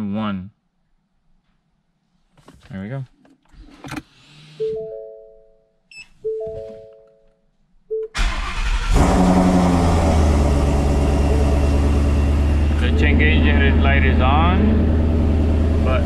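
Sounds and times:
car engine starting and idling: 0:08.1 - 0:16.0.

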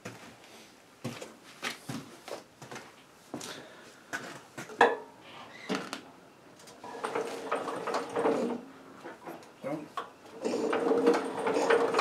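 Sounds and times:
scraping rattling metal: 0:10.4 - 0:12.0.

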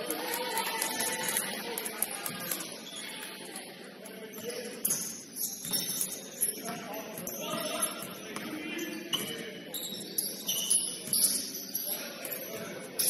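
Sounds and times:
sneakers squeaking on court: 0:04.3 - 0:13.0.

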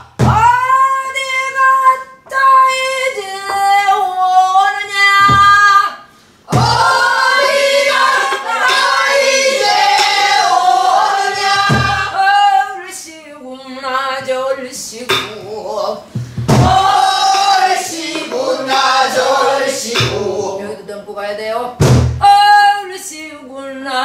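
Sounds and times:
group of voices singing: 0:06.5 - 0:21.0.

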